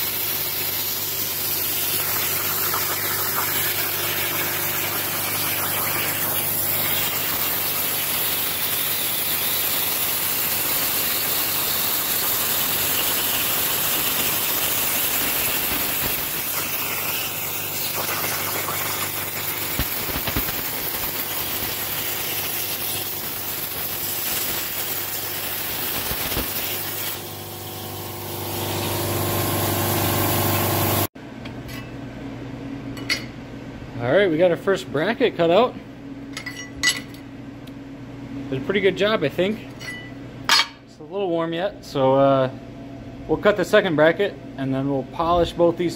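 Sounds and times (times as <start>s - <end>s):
plasma cutter hiss: 0.0s - 31.1s.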